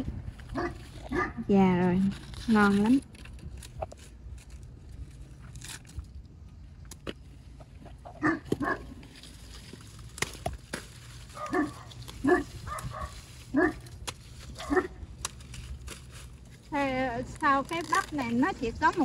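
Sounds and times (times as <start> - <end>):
dog barking: 0.5 - 1.4, 8.2 - 8.9, 11.4 - 13.8, 14.6 - 15.0.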